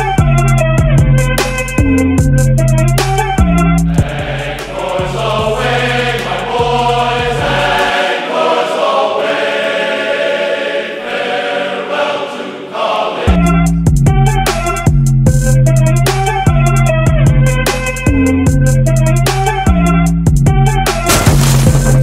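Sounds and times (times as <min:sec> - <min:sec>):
bass: 0:00.0 - 0:07.9, 0:13.3 - 0:22.0
choir singing: 0:03.9 - 0:13.7.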